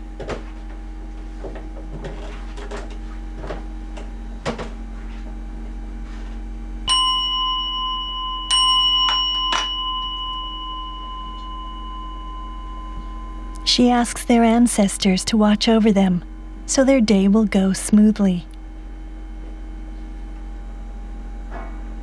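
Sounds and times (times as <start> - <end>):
bowl bell ringing: 6.8 - 13.7.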